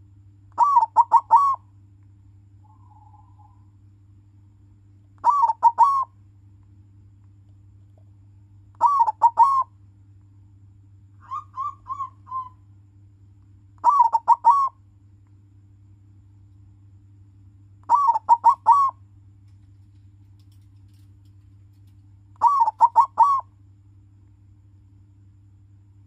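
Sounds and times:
dove cooing: 0:00.6 - 0:01.6, 0:02.6 - 0:03.7, 0:05.2 - 0:06.1, 0:08.8 - 0:09.7, 0:11.2 - 0:12.6, 0:13.8 - 0:14.8, 0:17.9 - 0:19.0, 0:22.4 - 0:23.5.

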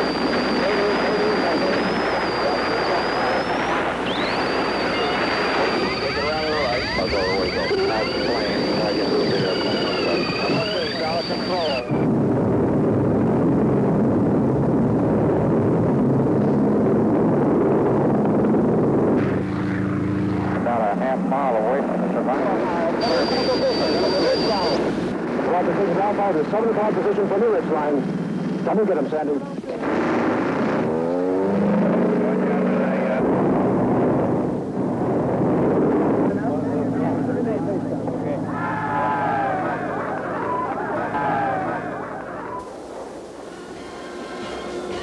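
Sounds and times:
aircraft engine rumble: 0:00.0 - 0:25.4, 0:33.2 - 0:45.0.

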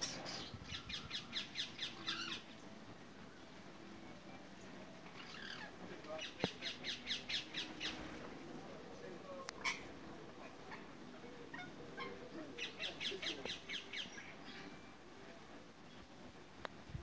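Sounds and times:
parakeets chattering: 0:00.0 - 0:02.5, 0:05.2 - 0:08.0, 0:09.5 - 0:10.0.

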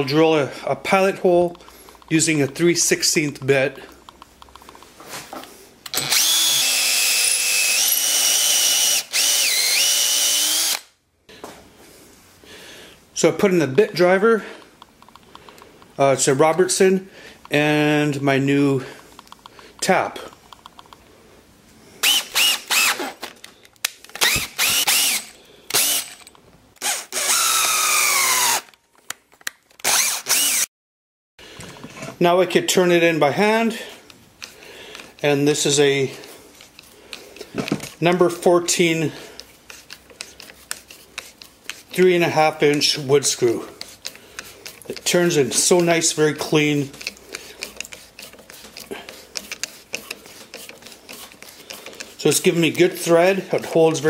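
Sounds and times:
cordless drill whining: 0:05.9 - 0:10.9, 0:22.0 - 0:23.3, 0:24.2 - 0:28.8, 0:29.8 - 0:30.7.

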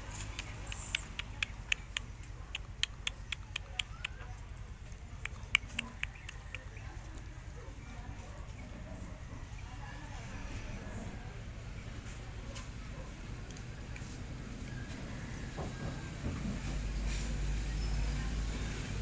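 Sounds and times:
rapid sharp clicks: 0:00.1 - 0:06.8.

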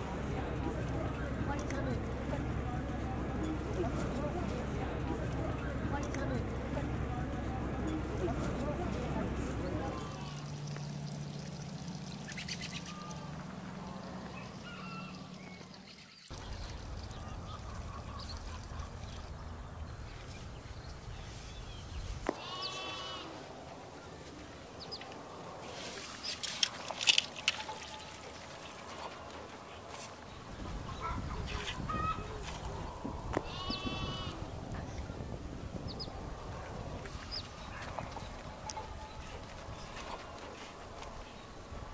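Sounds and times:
steady low hum: 0:00.0 - 0:41.9
animal calling: 0:07.9 - 0:19.8, 0:22.3 - 0:35.1.

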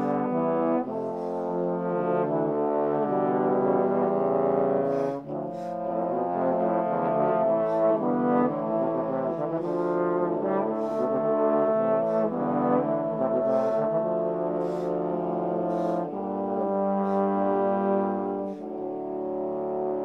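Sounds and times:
trombones playing counterpoint: 0:00.0 - 0:20.0.

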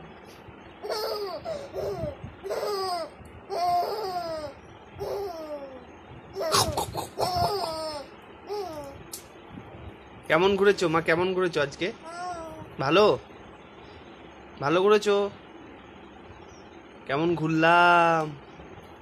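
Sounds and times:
baby laughing: 0:00.8 - 0:05.8, 0:06.4 - 0:09.0.

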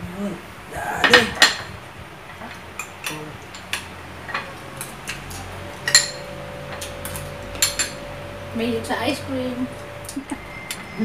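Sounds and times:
metal spoons clinking against bowls: 0:02.8 - 0:08.4.

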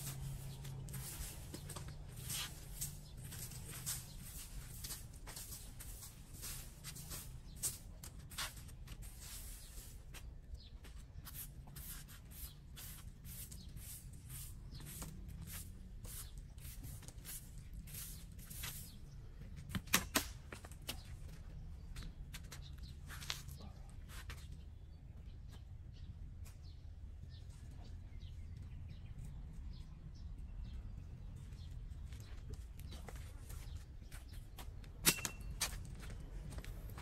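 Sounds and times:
broom sweeping concrete: 0:00.0 - 0:19.2, 0:23.0 - 0:24.5.

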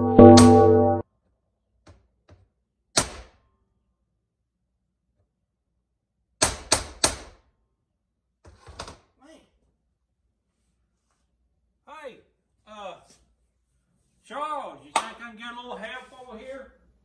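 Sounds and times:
background music: 0:00.0 - 0:01.0
sharp knock: 0:00.0 - 0:01.0.

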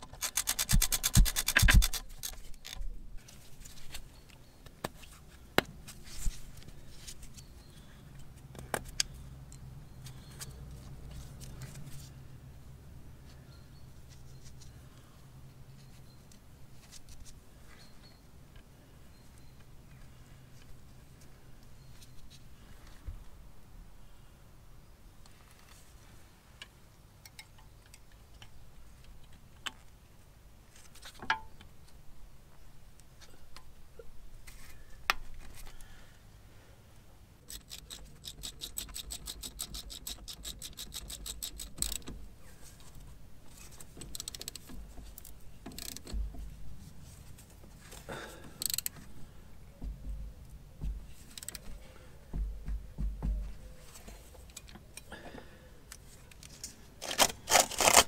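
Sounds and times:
rapid even ticking: 0:00.0 - 0:02.4
metallic clicks and clinks: 0:00.0 - 0:03.0, 0:37.5 - 0:42.1, 0:43.9 - 0:46.2
dull knocks: 0:52.4 - 0:53.6.

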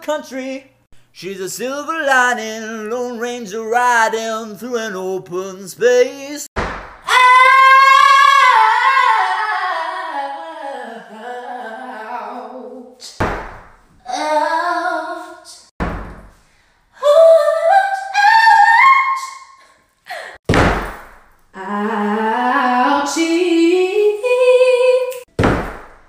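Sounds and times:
dull heavy thumps: 0:06.6 - 0:07.1, 0:13.2 - 0:13.9, 0:20.4 - 0:21.3, 0:25.3 - 0:26.0
woman singing unaccompanied: 0:07.1 - 0:13.0, 0:21.6 - 0:25.3.

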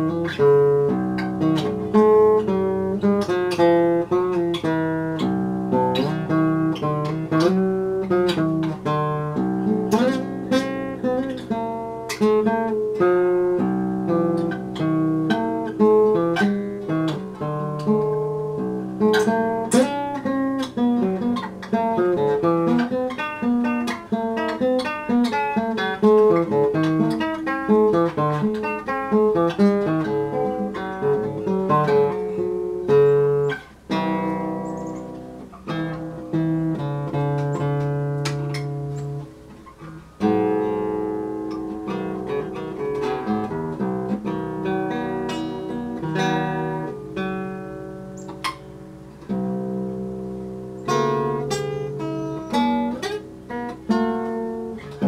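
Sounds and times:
acoustic guitar plucking: 0:00.0 - 0:55.0.

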